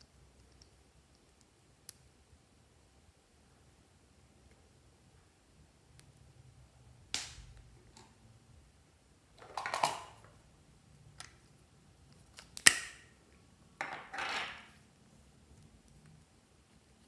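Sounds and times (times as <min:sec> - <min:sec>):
metal caps clicking and knocking: 0:09.4 - 0:10.3, 0:13.8 - 0:14.7.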